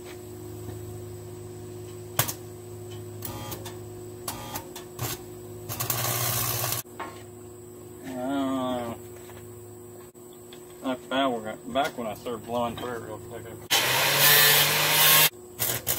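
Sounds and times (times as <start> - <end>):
steady hum: 0.0 - 15.9
arc welder buzzing and crackling: 1.8 - 6.9, 13.7 - 15.9.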